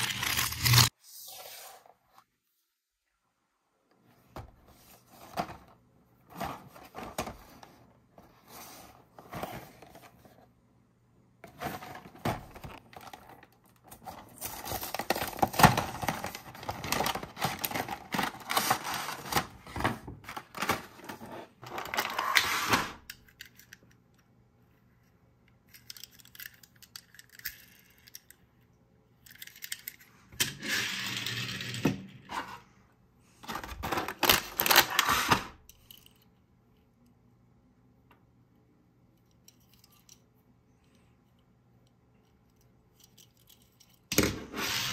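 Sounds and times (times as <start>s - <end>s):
toy packaging being opened: 0.0s - 0.9s, 11.5s - 22.4s, 33.4s - 35.4s.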